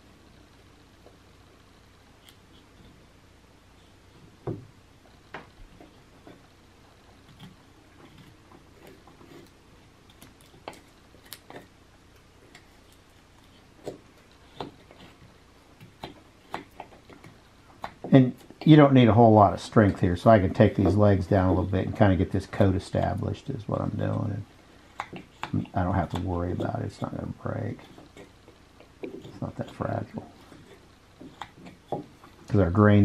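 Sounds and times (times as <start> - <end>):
knife whittling wood: 5.1 - 33.0.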